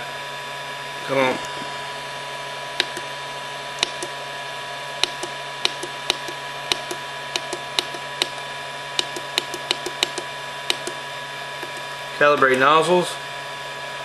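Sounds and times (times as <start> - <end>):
printer humming: 1.1 - 13.0
control panel buttons clicking: 2.8 - 3.1, 3.8 - 4.2, 5.0 - 8.4, 9.0 - 11.0, 11.6 - 12.5.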